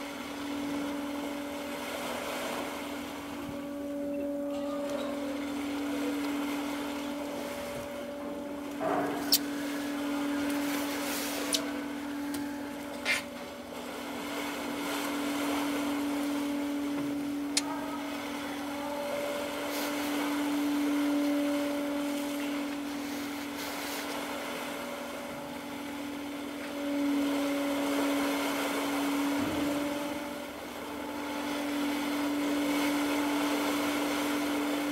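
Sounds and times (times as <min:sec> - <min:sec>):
ship machinery drone: 0:00.0 - 0:34.9.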